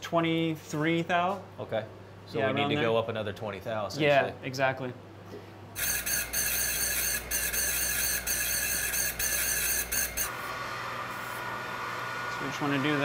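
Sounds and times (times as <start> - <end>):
electric filer grinding metal ring: 5.8 - 13.0
motor humming: 5.8 - 13.0.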